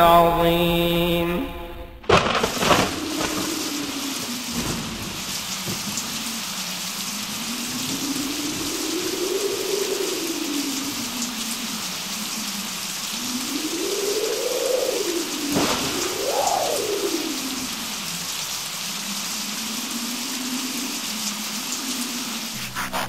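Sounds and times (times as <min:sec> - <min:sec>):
steady rain hissing: 0:02.1 - 0:23.0
low rising and falling tone: 0:22.4 - 0:23.0.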